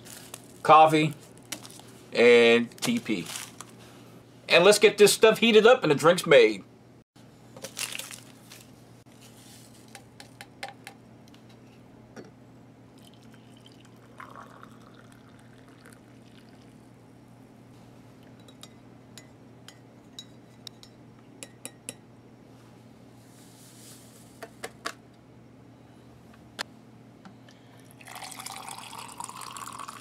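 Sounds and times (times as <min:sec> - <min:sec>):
water pouring into mug: 0:13.0 - 0:16.8, 0:27.9 - 0:30.0.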